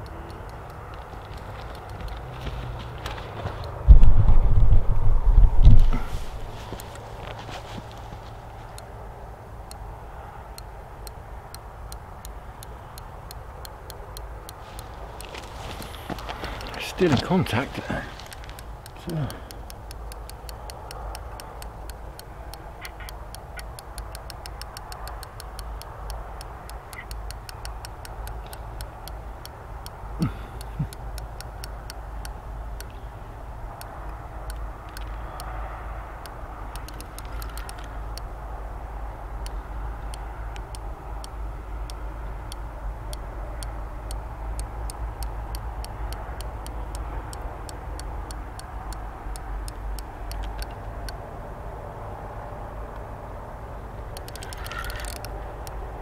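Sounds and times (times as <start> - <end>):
fishing reel ticking: 54.2 - 55.3.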